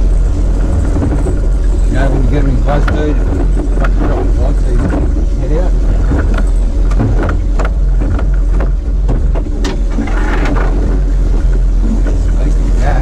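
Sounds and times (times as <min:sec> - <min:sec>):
wind and water rumble: 0:00.0 - 0:13.0
knocks and clicks on boat: 0:00.4 - 0:12.8.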